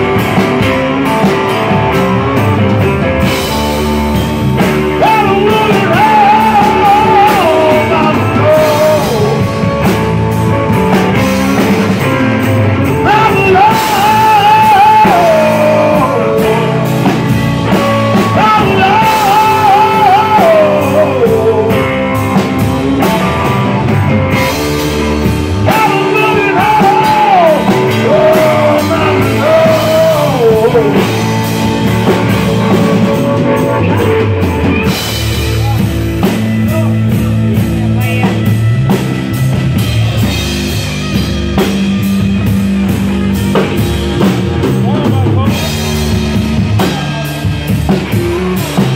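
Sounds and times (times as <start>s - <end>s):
live rock band playing: 0.0s - 48.9s.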